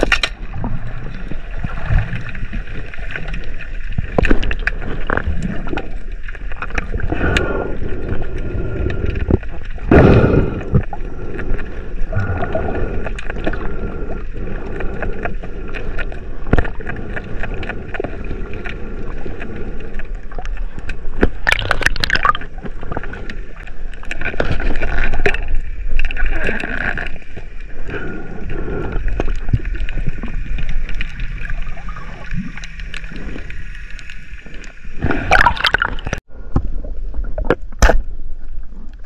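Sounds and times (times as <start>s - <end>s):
water rushes: 0.0s - 27.9s, 28.8s - 36.2s
muffled underwater gurgling: 0.0s - 33.6s, 34.4s - 38.0s
sharp underwater clicks: 1.7s - 31.5s.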